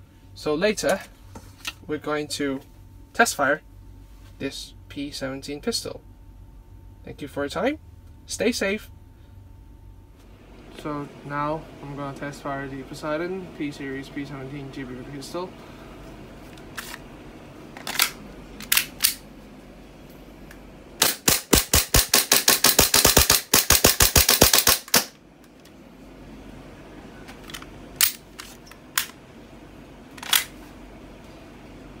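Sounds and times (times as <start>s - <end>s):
airsoft pistol rapid shots: 21.0s - 25.2s.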